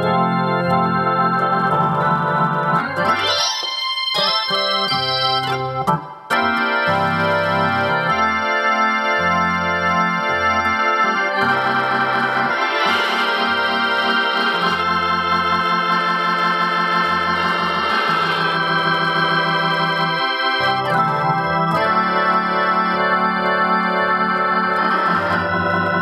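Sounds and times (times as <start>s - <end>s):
organ chords with rotary effect: 0.0s - 26.0s.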